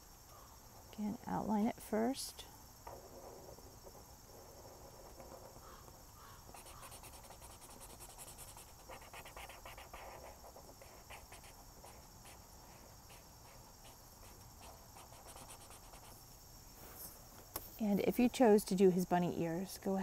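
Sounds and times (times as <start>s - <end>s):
marker scratching on paper: 3.9s - 5.8s, 6.5s - 12.4s, 13.1s - 16.2s.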